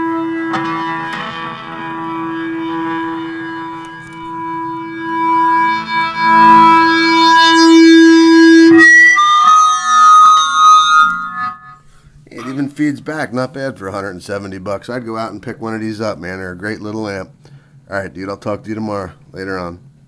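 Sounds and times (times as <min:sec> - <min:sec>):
electric guitar notes: 0:00.0 - 0:12.6.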